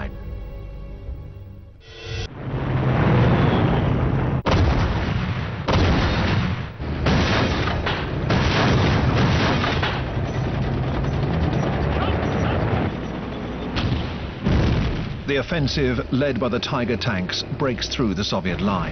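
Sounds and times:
artillery fire and explosions: 2.3 - 16.3.

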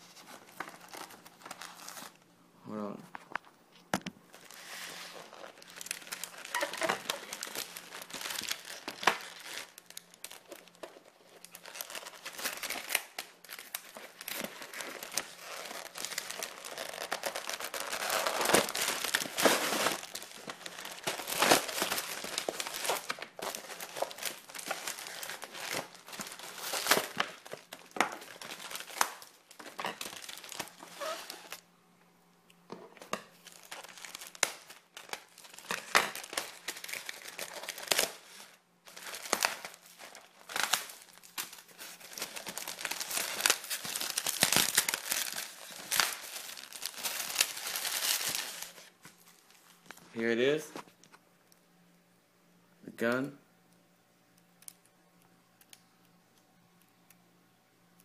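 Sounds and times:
plastic wrapper crinkling and tearing: 0.0 - 2.3, 3.4 - 31.7, 33.0 - 51.2
cardboard and styrofoam rustling: 4.3 - 31.6, 33.4 - 50.5.

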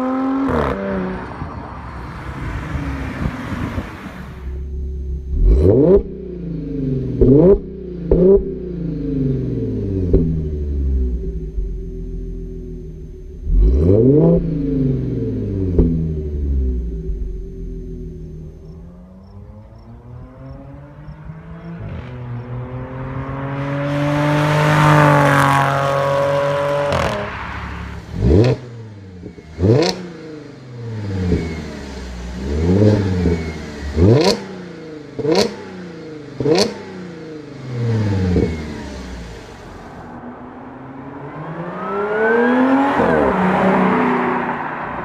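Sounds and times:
car engine revving: 0.0 - 45.0
car engine quick revs: 21.8 - 40.1.

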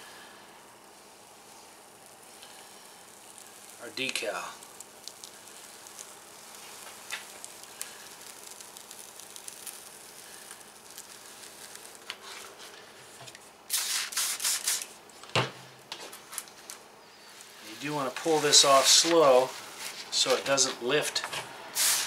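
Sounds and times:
faint crinkling: 0.9 - 13.2
paper backing peeled and rubbed: 13.7 - 14.9, 17.4 - 20.8.

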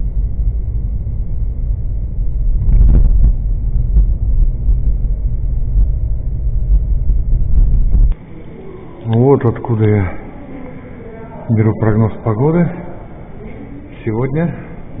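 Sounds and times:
car road and engine rumble: 0.0 - 8.2.

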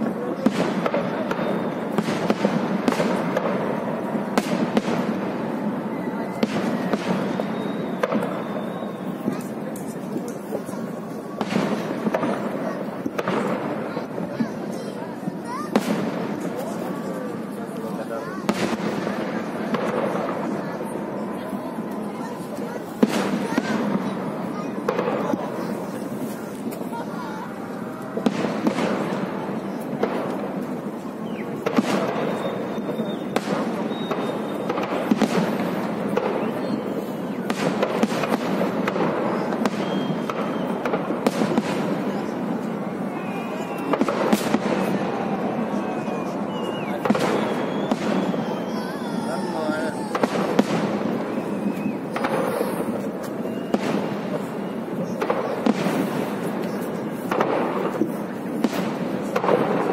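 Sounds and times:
fireworks bangs: 0.0 - 59.9
fireworks crackle and rumble: 0.0 - 59.9
fireworks shells bursting: 46.4 - 59.9.

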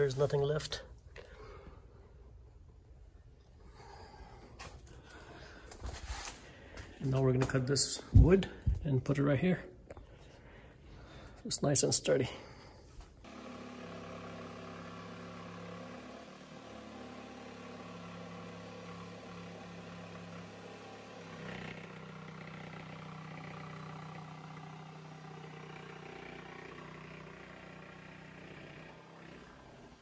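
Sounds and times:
power saw motor hum: 13.2 - 30.0.

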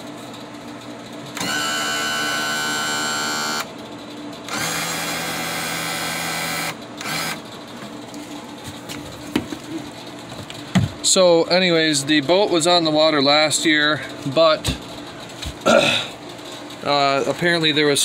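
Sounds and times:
electric pump whine: 1.3 - 3.8, 4.5 - 11.3.

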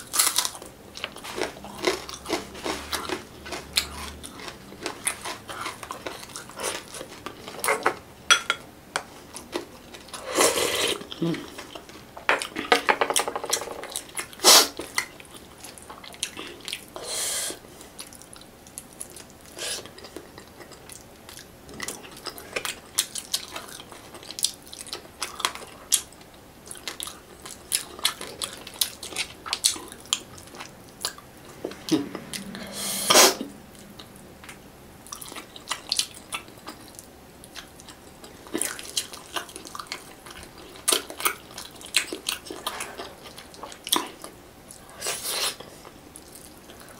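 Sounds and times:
chewing and lip smacks: 13.9 - 16.9, 17.8 - 32.7, 33.7 - 45.0.

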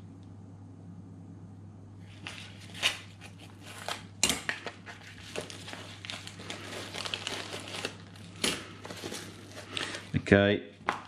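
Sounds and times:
plastic satchel crinkling: 4.7 - 10.2.

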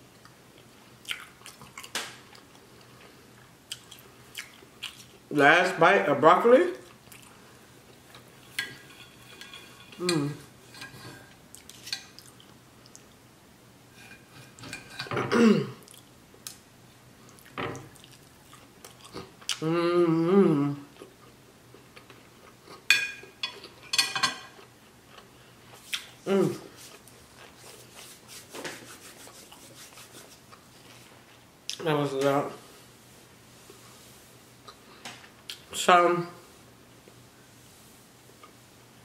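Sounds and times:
chewing: 0.2 - 3.1, 3.7 - 5.2, 11.5 - 13.2, 17.3 - 19.6
knife and fork scraping plate: 8.5 - 10.1
person humming: 10.0 - 10.5, 19.6 - 20.9, 26.2 - 26.7.

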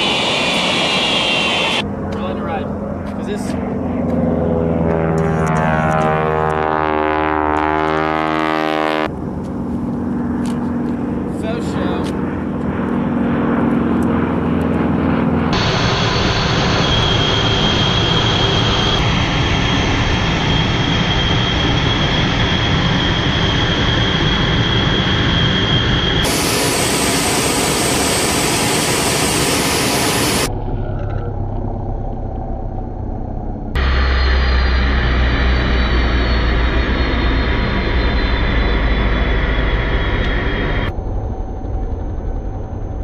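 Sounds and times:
jet engine whine and rush: 0.0 - 43.0
propeller engine droning: 0.0 - 43.0.

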